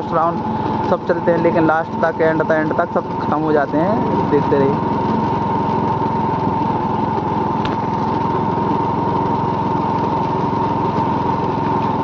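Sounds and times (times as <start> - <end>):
small vehicle engine running: 0.0 - 12.0.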